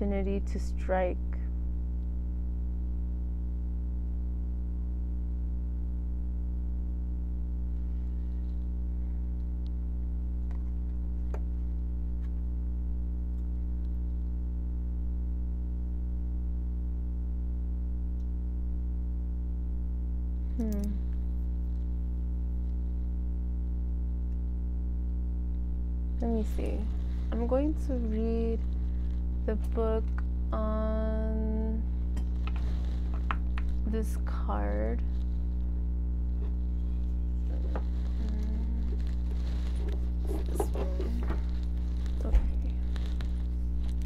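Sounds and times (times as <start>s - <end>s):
electrical hum: 0.0s - 44.0s.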